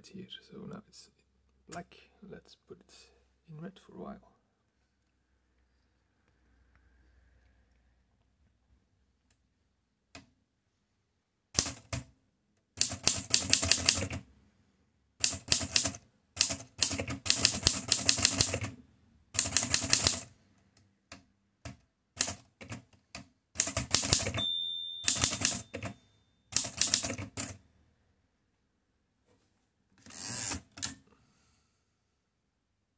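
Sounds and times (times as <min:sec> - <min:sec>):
typewriter margin bell ringing: 0:24.0 - 0:27.0
typewriter key strikes: 0:25.0 - 0:27.4.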